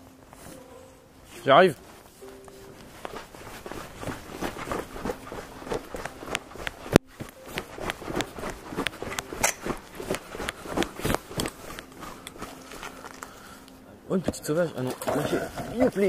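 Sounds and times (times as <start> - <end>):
running footsteps on wet pavement: 3.0 - 12.6.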